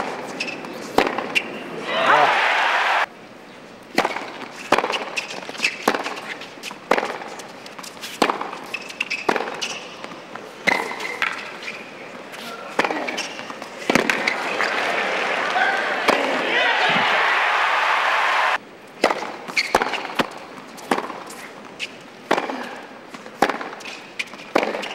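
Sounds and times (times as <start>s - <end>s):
crowd noise: 1.6s - 3.1s, 13.6s - 18.6s
tennis ball bouncing: 3.9s - 11.5s, 12.7s - 14.4s, 19.0s - 22.5s, 23.1s - 24.9s
racquets striking tennis ball: 3.9s - 11.6s, 12.7s - 24.9s.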